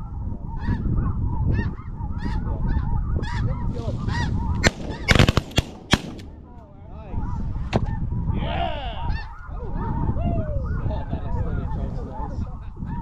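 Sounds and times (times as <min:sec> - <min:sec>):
geese honking: 0:01.6 - 0:05.3
shotgun blasts: 0:04.6 - 0:06.6.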